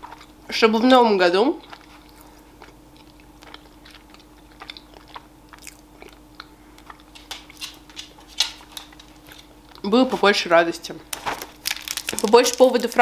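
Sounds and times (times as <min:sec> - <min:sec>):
faint steady hum: 0:00.0 - 0:13.0
chewing mouth clicks: 0:01.6 - 0:07.8.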